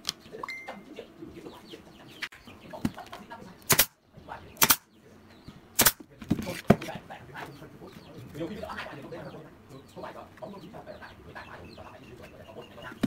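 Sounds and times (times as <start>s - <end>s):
nail gun shots: 3.6s - 4.0s, 4.6s - 4.9s, 5.8s - 6.1s.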